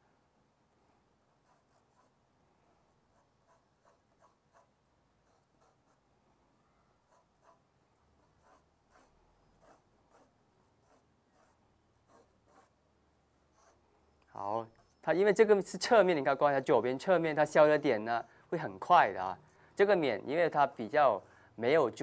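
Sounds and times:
pencil strokes on paper: 1.4 - 2.3, 3.1 - 6.0, 8.2 - 12.8, 13.5 - 13.8, 14.4 - 22.0.

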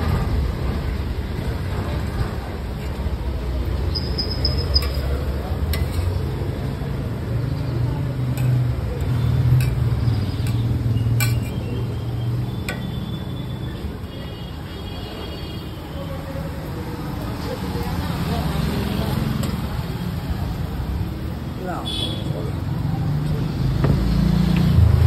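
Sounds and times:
street traffic hum: 0.0 - 25.0
metal spatula scraping on griddle: 5.7 - 6.2.

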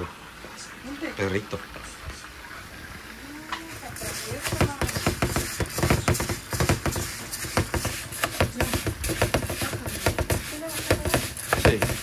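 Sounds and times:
rice sizzling in oil: 0.0 - 12.0.

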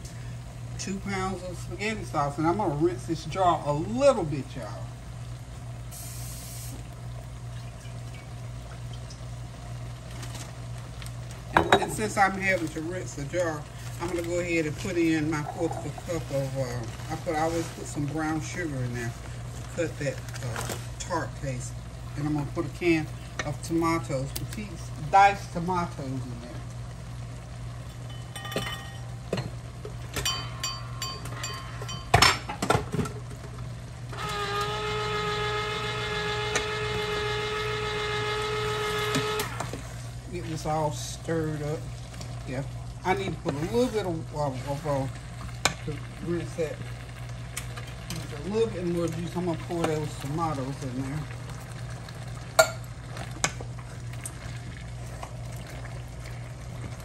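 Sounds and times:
electric hum: 0.0 - 57.0
utensils knocking against a pot: 28.1 - 29.5, 30.2 - 32.8.

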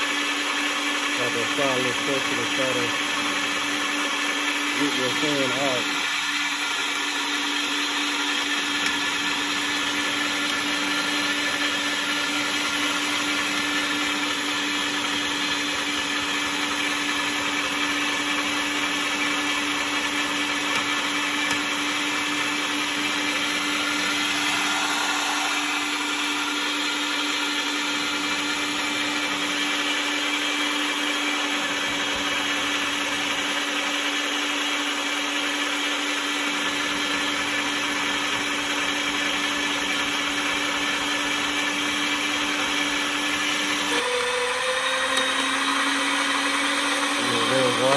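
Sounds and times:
electric meat grinder humming: 0.0 - 47.9.

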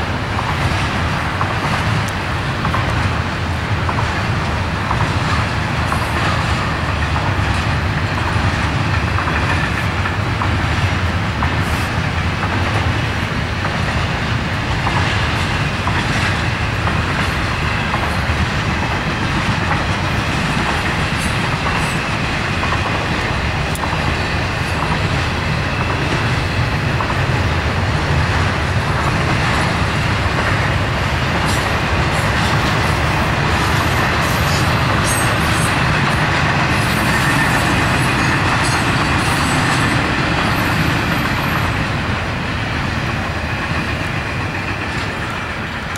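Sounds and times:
steel wheels rolling on rails: 0.0 - 45.9.

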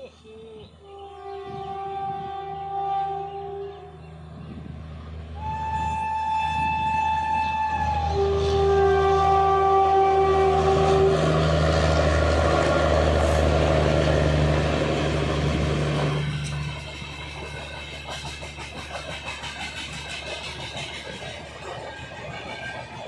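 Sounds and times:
locomotive passing with low hum: 0.0 - 23.0
locomotive horn: 0.8 - 4.6, 5.2 - 16.8
train coaches rattling and clicking: 5.8 - 23.0.

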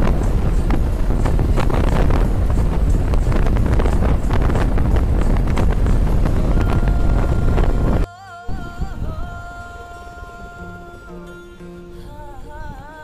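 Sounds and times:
motorcycle road and engine noise: 0.0 - 8.0
wind buffeting microphone: 0.0 - 9.4.

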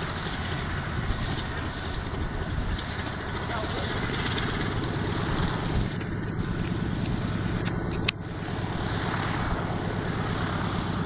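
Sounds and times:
radial aircraft engine drone: 0.0 - 11.0.

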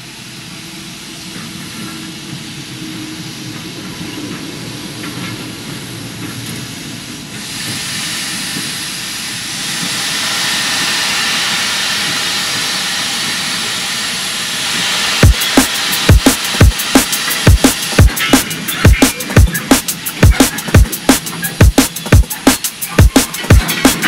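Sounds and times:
steam train hissing: 0.0 - 24.0
drum and bass beat: 15.2 - 24.0
heavy kick drums: 15.2 - 24.0.

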